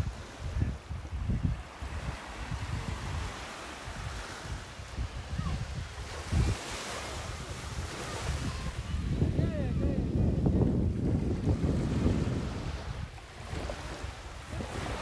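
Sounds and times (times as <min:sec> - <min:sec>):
surf washing onto beach: 0:00.0 - 0:15.0
wind on microphone: 0:00.0 - 0:15.0.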